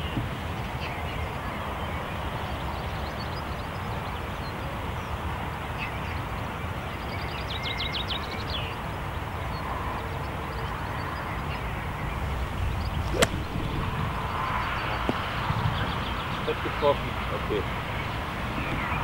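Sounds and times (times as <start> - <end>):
wind rumbling on microphone: 9.0 - 19.0
golf club striking sand and ball: 12.9 - 14.0.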